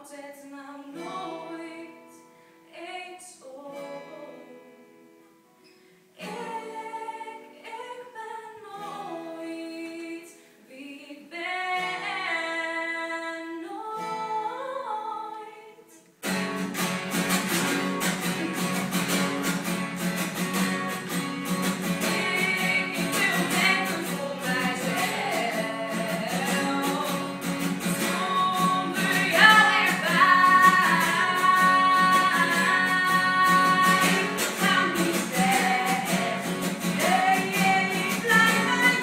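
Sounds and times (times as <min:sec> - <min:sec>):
women singing slow melody: 0:00.0 - 0:05.1, 0:06.2 - 0:16.0, 0:21.8 - 0:39.0
acoustic guitar strumming: 0:16.2 - 0:39.0.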